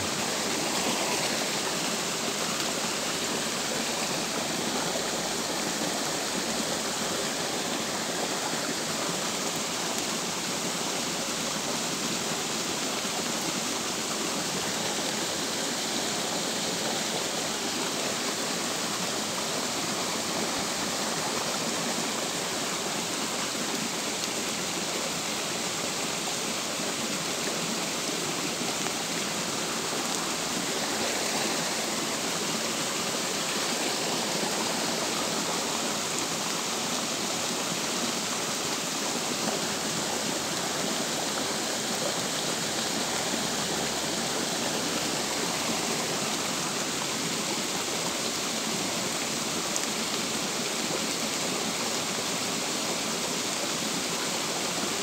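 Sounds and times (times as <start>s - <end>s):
rain on stream and leaves: 0.0s - 55.0s.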